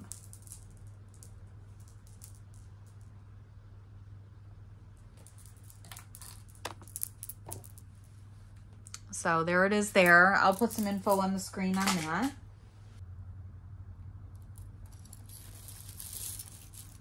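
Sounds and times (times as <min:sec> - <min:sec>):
jewelry clicking and rustling: 0:00.0 - 0:03.0, 0:05.0 - 0:09.0, 0:09.9 - 0:12.4, 0:14.4 - 0:17.0
low electrical hum: 0:00.0 - 0:17.0.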